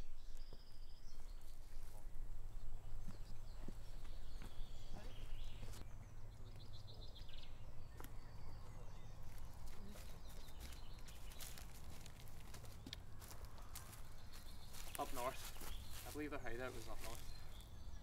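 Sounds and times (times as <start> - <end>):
footsteps on dry leaves and twigs: 0.4 - 2.2, 3.0 - 5.9, 9.1 - 17.8.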